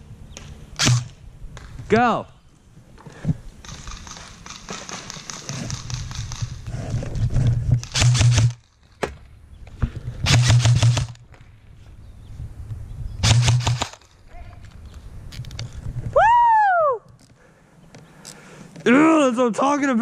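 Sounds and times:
airsoft gun rapid-fire bursts: 3.6 - 6.6, 7.8 - 8.6, 10.3 - 11.2, 13.2 - 14.0.

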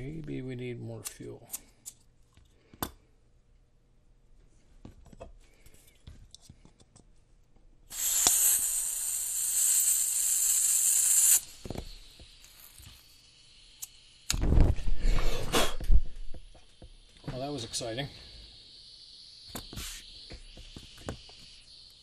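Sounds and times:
butane gas hissing: 7.9 - 22.0.

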